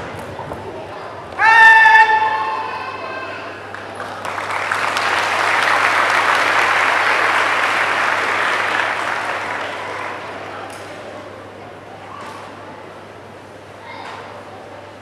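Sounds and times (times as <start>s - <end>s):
audience applauding: 3.7s - 10.7s.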